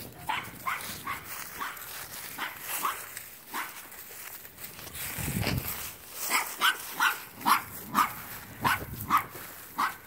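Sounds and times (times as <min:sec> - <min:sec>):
puppy yipping: 0:00.2 - 0:01.8, 0:06.3 - 0:10.0.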